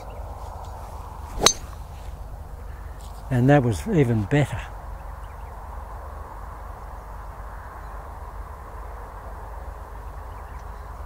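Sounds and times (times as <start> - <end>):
low outdoor rumble: 0.0 - 11.0.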